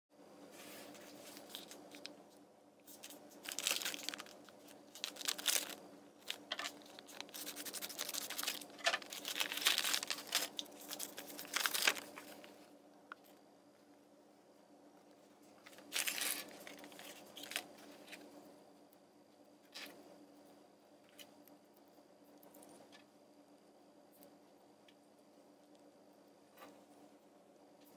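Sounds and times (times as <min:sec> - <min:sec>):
plastic bag crinkling: 0:01.0 - 0:02.2, 0:02.9 - 0:12.6, 0:15.6 - 0:17.8.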